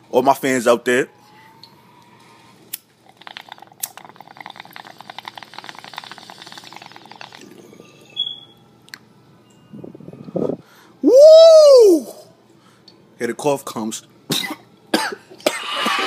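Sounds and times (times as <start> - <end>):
water bong bubbling: 3.0 - 8.6.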